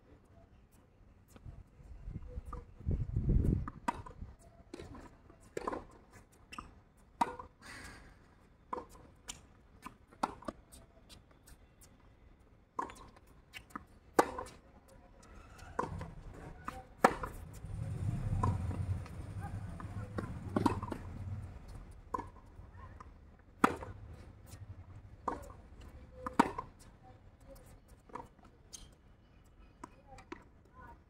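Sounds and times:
tennis ball bouncing: 0:03.6 - 0:07.6, 0:12.8 - 0:14.6, 0:15.8 - 0:17.6, 0:18.3 - 0:19.2, 0:19.8 - 0:21.2, 0:22.1 - 0:22.5, 0:23.6 - 0:24.0, 0:25.2 - 0:25.6, 0:26.2 - 0:26.8
rackets striking tennis ball: 0:19.8 - 0:21.1.

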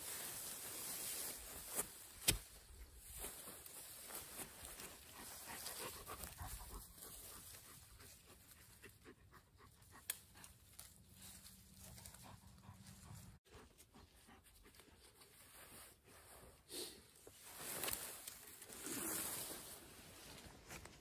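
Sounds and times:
branches and leaves rustling: 0:00.0 - 0:08.7, 0:10.0 - 0:13.4, 0:17.2 - 0:21.0.

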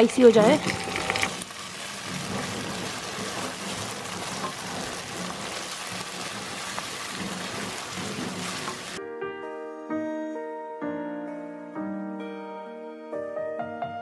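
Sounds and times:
food sizzling in oil: 0:00.0 - 0:09.0
wooden spoon stirring: 0:00.2 - 0:09.0.

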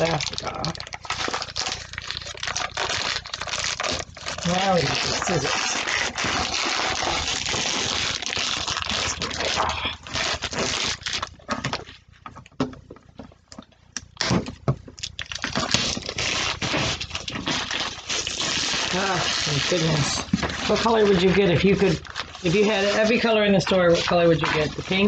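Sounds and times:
plastic film crinkling: 0:00.0 - 0:25.0.

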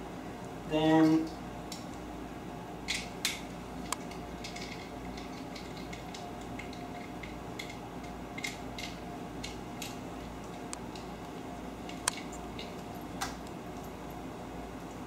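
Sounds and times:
low steady hum: 0:00.0 - 0:15.0
small metal parts clinking: 0:02.9 - 0:07.8.

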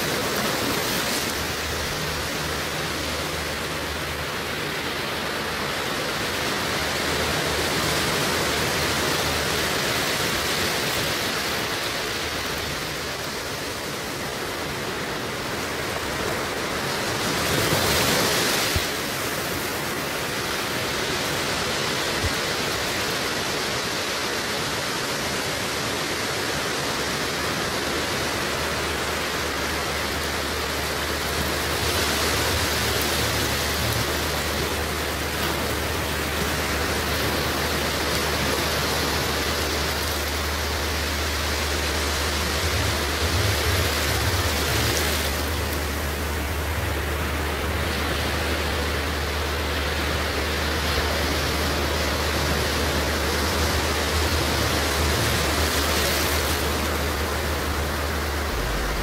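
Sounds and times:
steady rushing noise: 0:00.0 - 0:59.0
low steady hum: 0:28.8 - 0:59.0.

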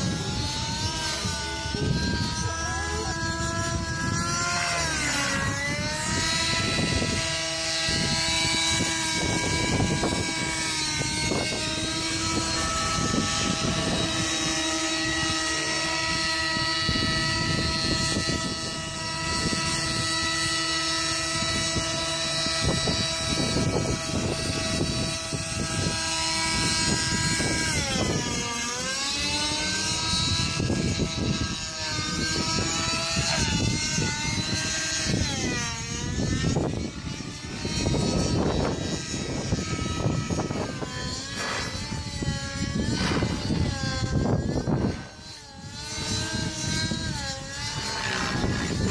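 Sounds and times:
model helicopter engine whine: 0:00.0 - 0:48.9.

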